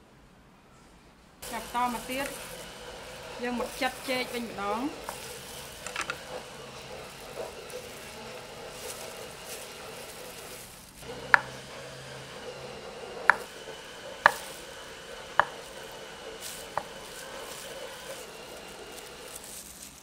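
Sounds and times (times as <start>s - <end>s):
cleaver knocking on wooden board: 11.1s - 11.7s, 15.3s - 15.6s.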